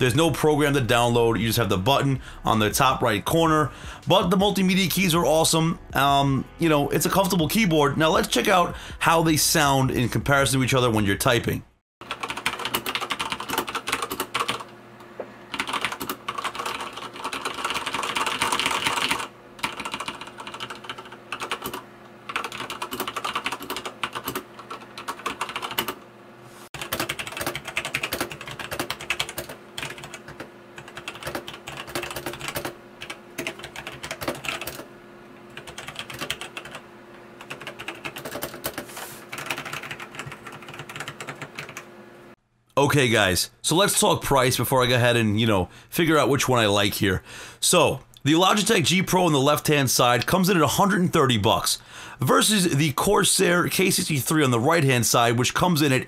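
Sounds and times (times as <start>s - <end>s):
mechanical keyboard typing: 12.0s - 14.7s, 15.5s - 26.0s, 26.8s - 34.9s, 35.5s - 36.8s, 37.4s - 41.8s.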